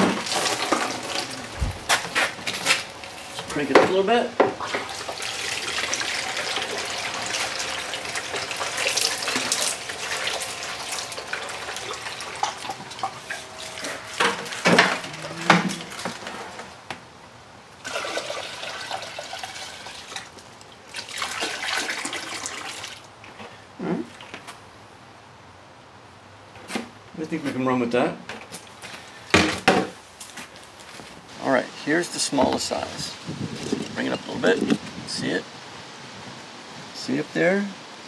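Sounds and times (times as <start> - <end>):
water splashing into plastic basin: 0.0 - 3.2, 4.5 - 16.2, 17.8 - 23.0.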